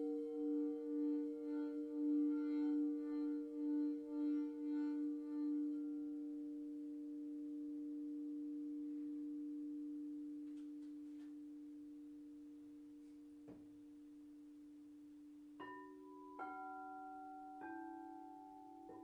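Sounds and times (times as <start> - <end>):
singing bowls ringing: 0.0 - 12.9, 15.6 - 19.0.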